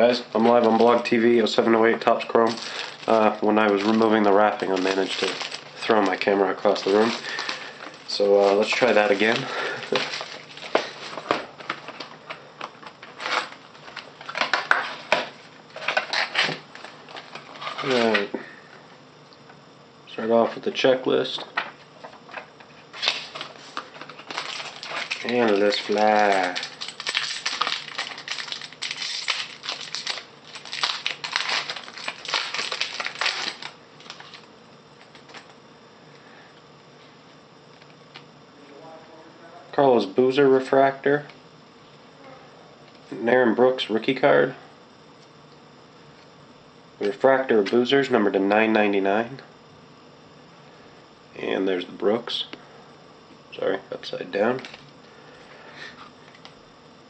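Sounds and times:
plastic wrapping rustling: 2.4 - 12.1, 22.9 - 34.5.

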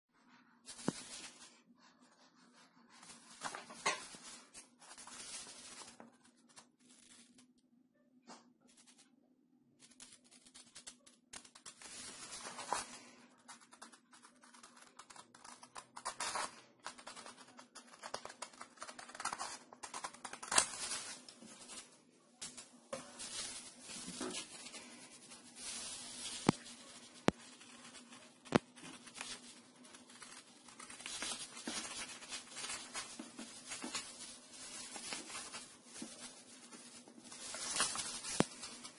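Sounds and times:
paper rustling: 0.2 - 7.5, 9.8 - 38.9
scissors cutting paper: 13.5 - 20.8.

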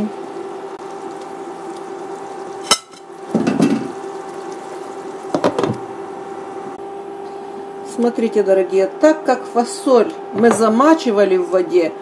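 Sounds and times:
steady hum: 0.0 - 12.0
pots and pans clattering: 2.6 - 4.0, 5.3 - 5.8
knocks on pans: 5.3 - 5.8.

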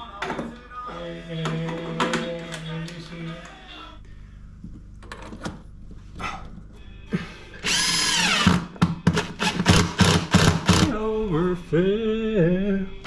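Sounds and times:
cordless drill driving screw: 7.6 - 8.6.

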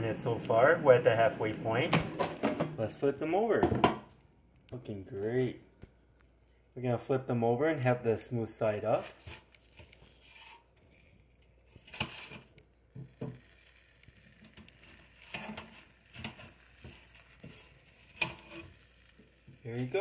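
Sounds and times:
tongs scraping and tapping basket: 9.0 - 20.0.

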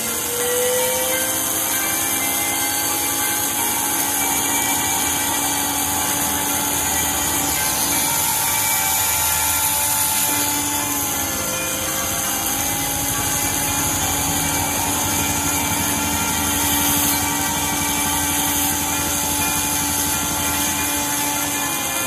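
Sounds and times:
rotary tool grinding stone: 0.0 - 22.0.

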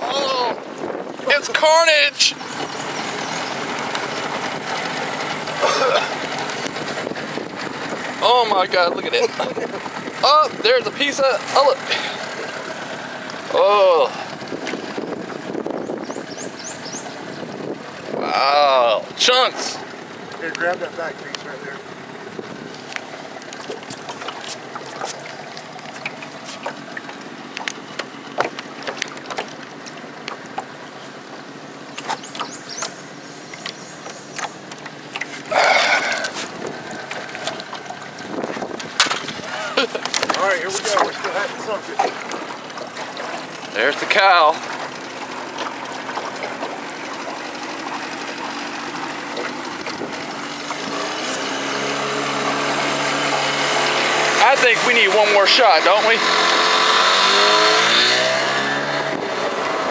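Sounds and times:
outboard motor running: 0.0 - 59.9
water lapping against boat: 0.0 - 59.9
sharp ticks and knocks: 22.7 - 35.5.

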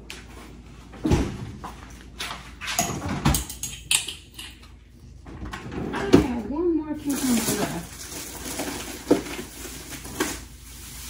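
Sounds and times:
dull thuds in refrigerator: 1.0 - 1.6.

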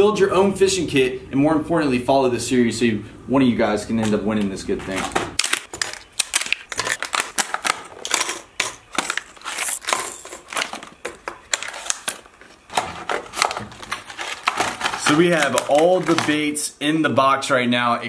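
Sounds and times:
plastic blister packs crackling: 4.0 - 16.8.

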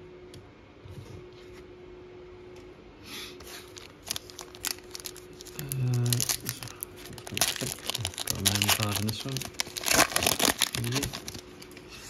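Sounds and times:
faint steady hum: 0.0 - 12.0
foil wrapper rustling and crackling: 3.6 - 11.6
handling trading cards: 3.7 - 11.7.

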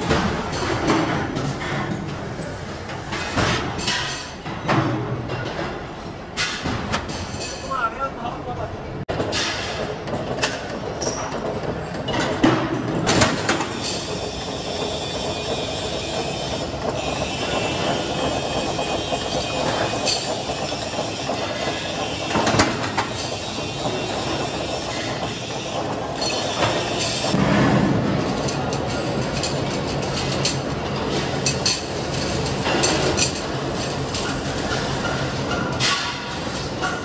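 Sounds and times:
sheet metal shear running: 9.1 - 37.0.

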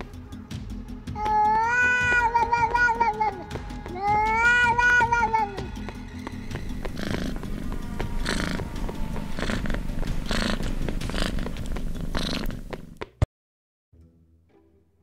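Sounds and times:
faint music: 0.0 - 12.8
cat purring: 5.8 - 13.0.

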